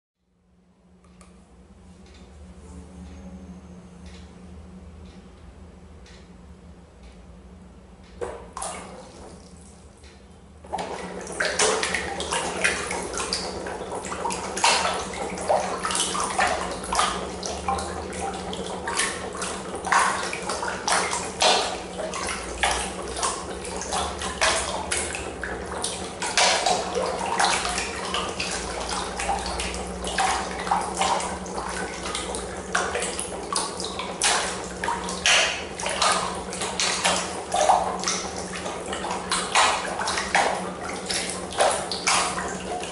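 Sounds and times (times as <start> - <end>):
steady low hum: 0.2 - 42.9
water splashing in trough: 8.2 - 9.8, 10.6 - 42.9.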